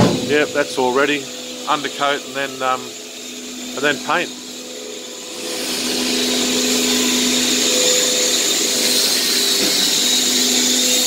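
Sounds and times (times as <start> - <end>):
workshop machinery motor whine: 0.0 - 11.0.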